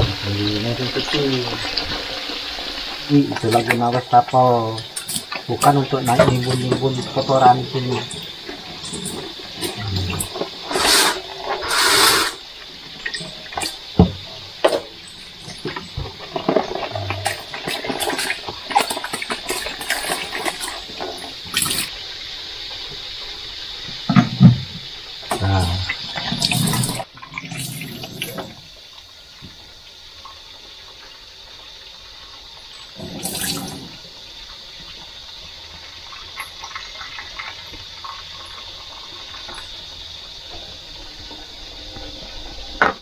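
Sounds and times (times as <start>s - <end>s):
tap water running into sink: 0.0s - 23.1s, 23.8s - 41.1s.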